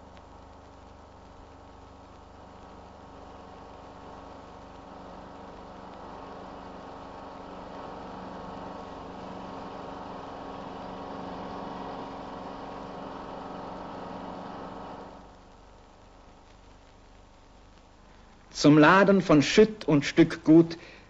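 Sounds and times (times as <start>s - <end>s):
mower cutting grass: 0.0s - 16.0s
diesel engine running: 0.0s - 16.1s
faint hiss: 0.0s - 21.0s.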